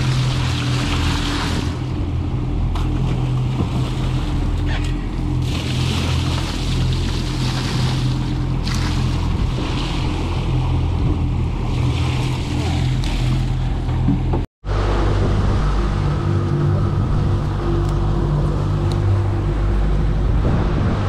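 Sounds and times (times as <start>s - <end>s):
water splashing: 0.0s - 2.0s, 2.6s - 13.8s
outboard engines idling: 0.0s - 21.0s.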